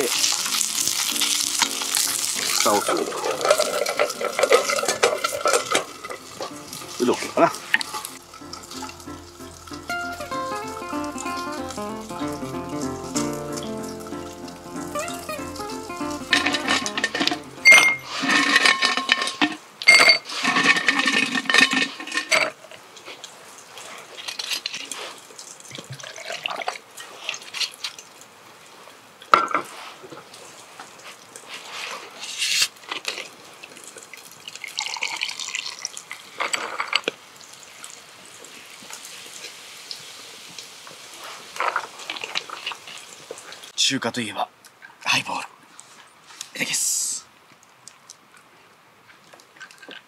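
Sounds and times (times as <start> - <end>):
glass and dishes clinking: 16.3 - 20.2
liquid pouring into glass: 34.8 - 35.9.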